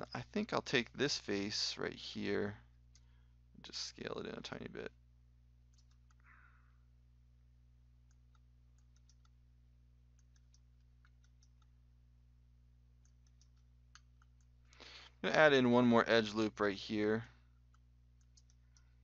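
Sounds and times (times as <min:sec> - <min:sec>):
low electrical hum: 0:00.0 - 0:19.0
computer mouse clicks: 0:05.7 - 0:06.3, 0:08.0 - 0:09.4, 0:10.1 - 0:11.7, 0:13.0 - 0:14.5, 0:17.6 - 0:18.9.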